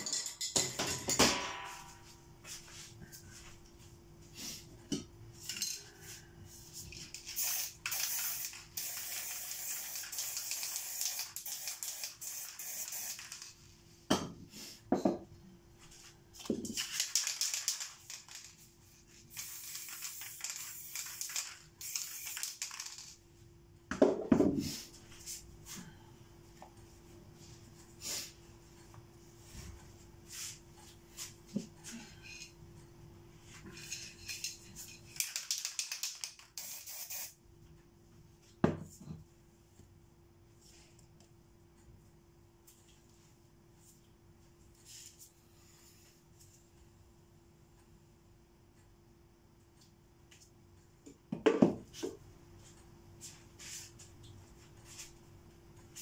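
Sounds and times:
aerosol spray can hissing: 0:07.3 - 0:13.5, 0:19.3 - 0:22.8, 0:36.6 - 0:37.4.

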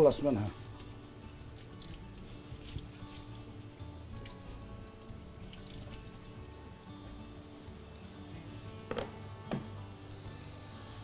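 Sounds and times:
water splashing in sink: 0:00.6 - 0:06.4.

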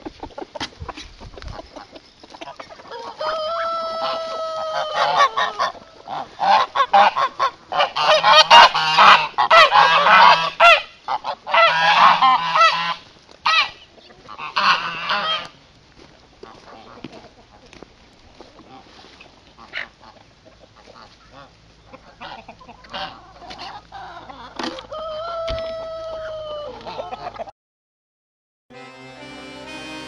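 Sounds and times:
farmyard poultry: 0:00.0 - 0:27.5
goose honking: 0:01.5 - 0:15.6, 0:19.5 - 0:27.4.

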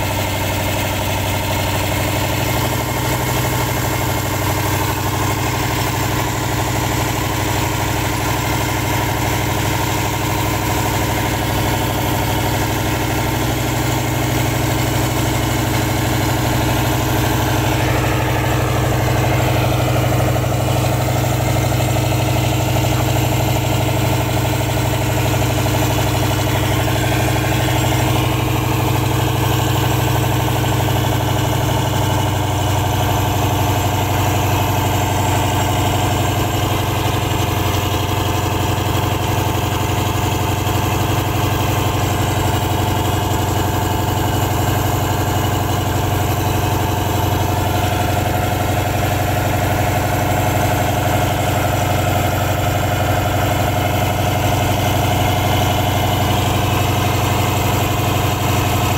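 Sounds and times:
engine running steadily: 0:00.0 - 0:58.9.

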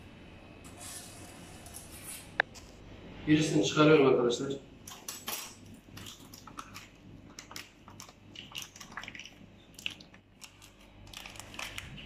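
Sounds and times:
paper muffin liner crinkling: 0:09.8 - 0:12.0.

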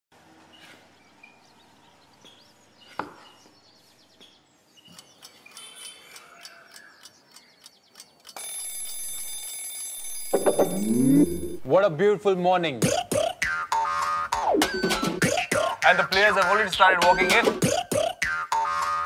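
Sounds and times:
small bird chirps: 0:00.5 - 0:08.4
alarm clock bell ringing: 0:08.4 - 0:11.6.

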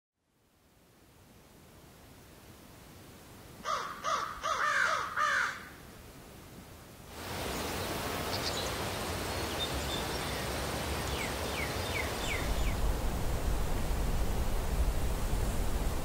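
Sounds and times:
steady rushing hiss: 0:05.7 - 0:16.0
small birds chirping: 0:09.4 - 0:12.9
low wind rumble: 0:10.2 - 0:16.0.

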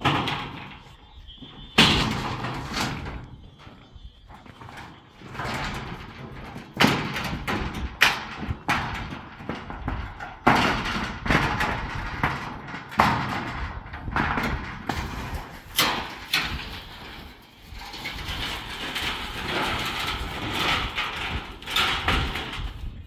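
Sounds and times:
heavy thuds and knocks: 0:04.4 - 0:17.0.

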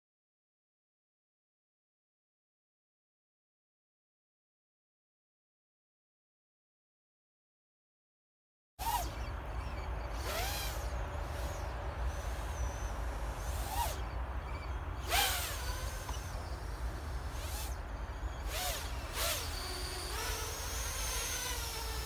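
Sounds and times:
quadcopter propellers buzzing: 0:08.8 - 0:22.0.

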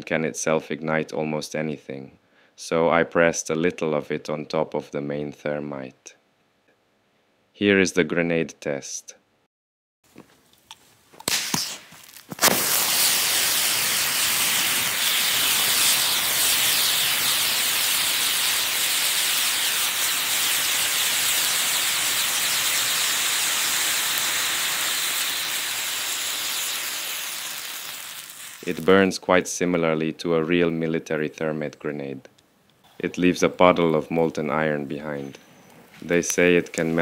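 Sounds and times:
short pops: 0:10.1 - 0:17.4
loud rushing hiss of burning: 0:11.3 - 0:29.0.

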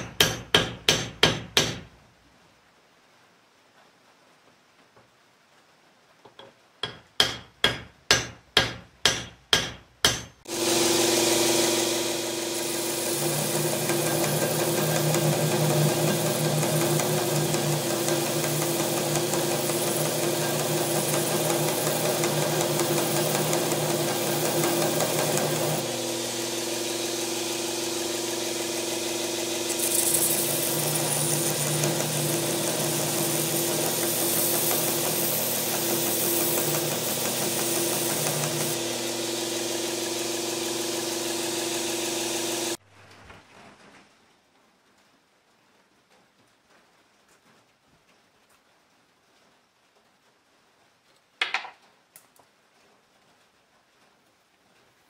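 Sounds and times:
belt grinder grinding steel: 0:10.5 - 0:42.8.

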